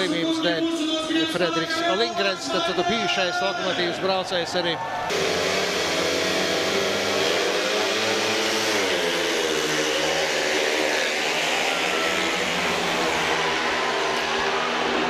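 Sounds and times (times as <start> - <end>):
motorcycle engines at full throttle: 5.1 - 15.0.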